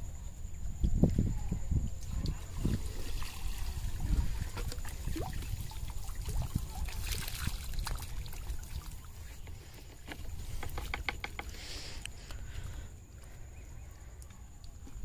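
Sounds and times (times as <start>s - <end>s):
water trickling: 2.0s - 11.5s
small splashes and clicks: 3.5s - 11.3s.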